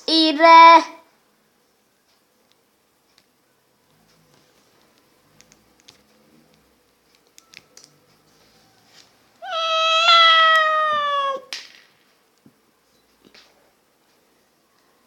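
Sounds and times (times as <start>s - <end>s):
cat meowing: 9.4s - 11.5s.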